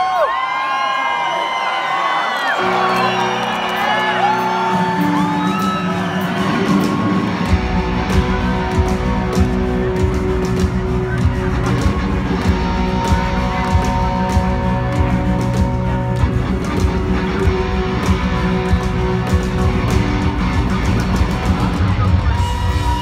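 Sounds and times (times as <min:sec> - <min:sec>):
electric guitar: 0:02.6 - 0:23.0
drums: 0:04.2 - 0:23.0
bass: 0:05.2 - 0:23.0.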